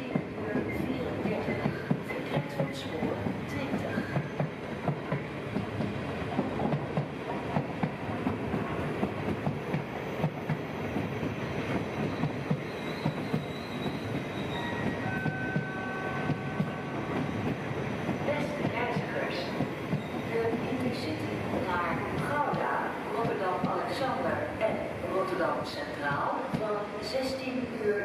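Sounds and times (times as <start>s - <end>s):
high wheel squeals: 12.1s - 16.3s.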